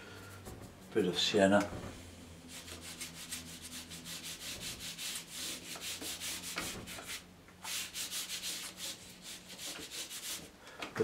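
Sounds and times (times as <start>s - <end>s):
brush scrubbing on paper: 2.4s - 10.5s.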